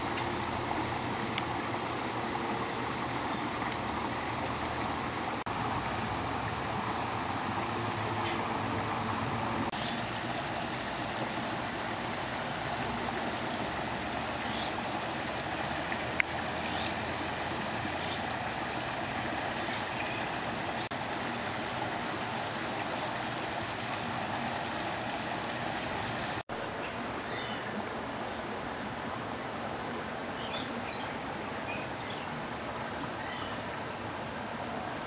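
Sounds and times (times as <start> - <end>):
running water: 0.0 - 35.0
small birds chirping: 14.4 - 14.8, 16.6 - 17.1, 17.9 - 18.3.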